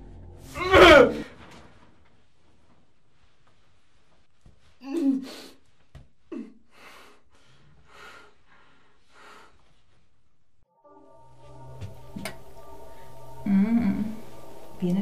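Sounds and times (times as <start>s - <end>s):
heavy breathing: 6.3s - 10.1s.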